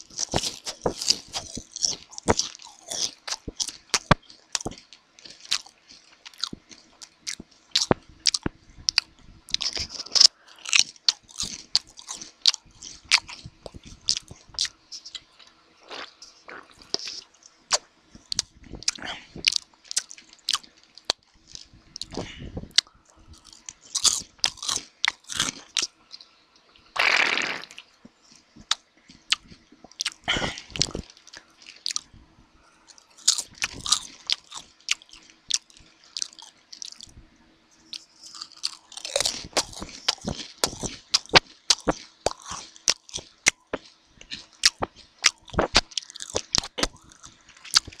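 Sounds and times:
potato chips crunched and chewed: 0.0 - 25.9, 28.3 - 32.1, 32.9 - 37.1, 37.8 - 48.0
mouth noises: 27.0 - 27.9.

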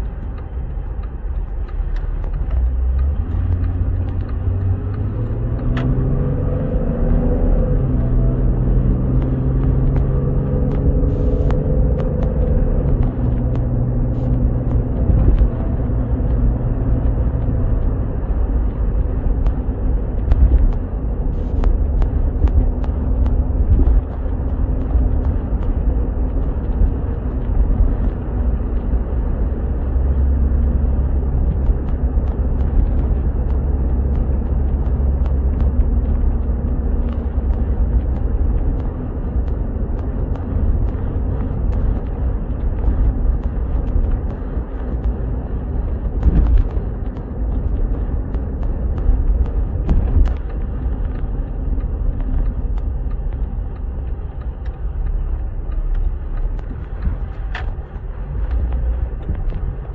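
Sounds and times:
car engine and road noise: 0.0 - 59.9.

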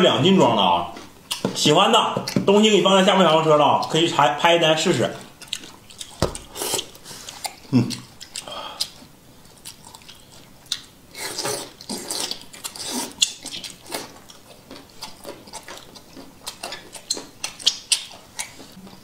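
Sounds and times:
wet chewing mouth clicks: 5.4 - 19.0
noodles being slurped: 6.4 - 7.6.

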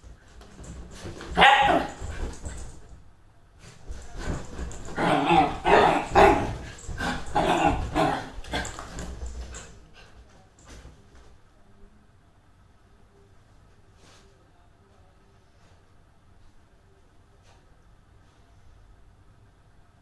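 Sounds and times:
dog barking: 1.4 - 2.0.

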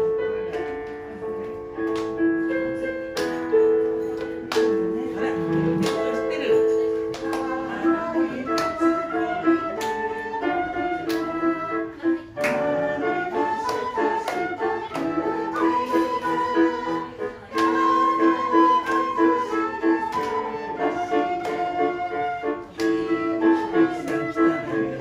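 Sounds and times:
electronic keyboard accompaniment: 0.0 - 25.0
flute playing slow melody: 8.4 - 25.0.

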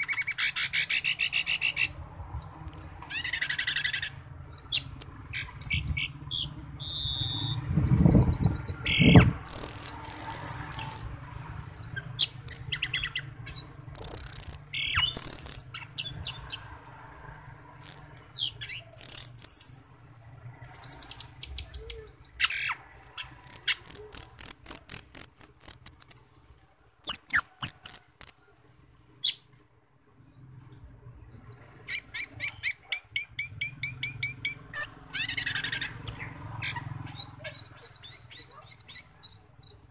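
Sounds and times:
bird singing whistles and trills: 0.0 - 29.4, 31.4 - 39.9.

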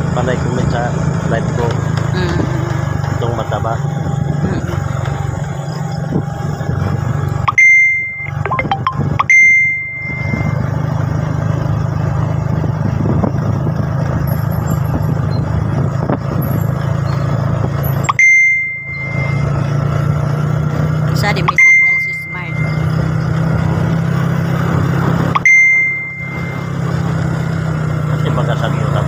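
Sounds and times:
motorcycle engine running: 0.0 - 29.0
wind and road noise: 0.0 - 29.0
bell-like dings: 7.5 - 10.8, 18.1 - 20.1, 21.4 - 23.2, 25.4 - 27.2.

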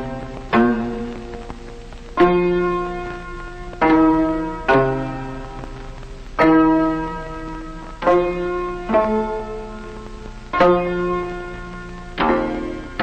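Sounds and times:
plucked string melody: 0.0 - 1.4, 10.6 - 13.0.

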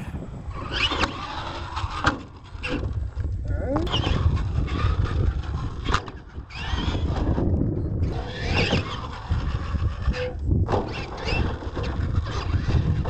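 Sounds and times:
low rumble: 0.0 - 1.9.

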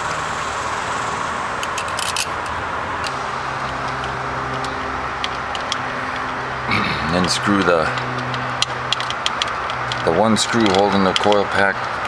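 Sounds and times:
steady background noise: 0.0 - 12.0
metal tool clicks and clinks: 1.6 - 2.6, 7.1 - 12.0.

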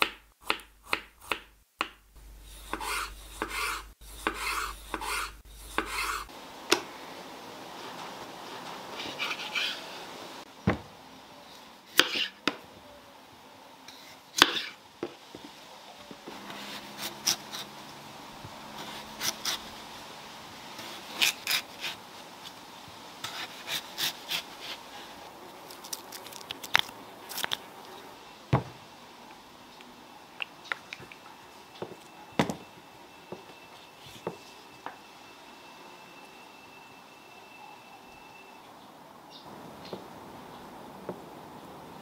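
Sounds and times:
knife knocking on cutting board: 28.6 - 28.8.

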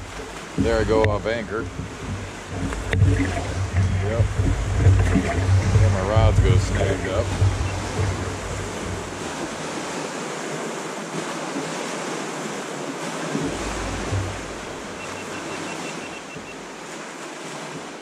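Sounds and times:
wind rushing: 0.0 - 9.8
wind buffeting microphone: 0.0 - 10.1, 13.3 - 16.8
choppy water around boat: 0.0 - 18.0.

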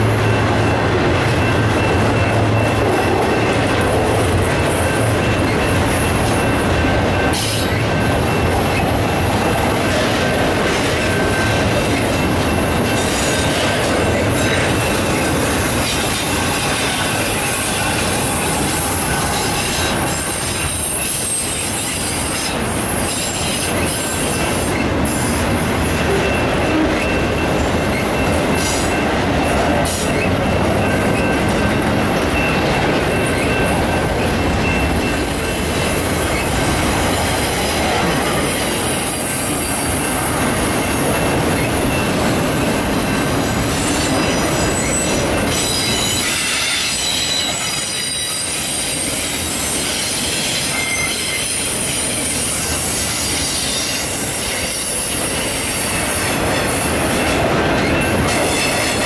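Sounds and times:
train wheels rumbling on rails: 0.0 - 59.0
high-pitched wheel squeal: 43.7 - 55.0.

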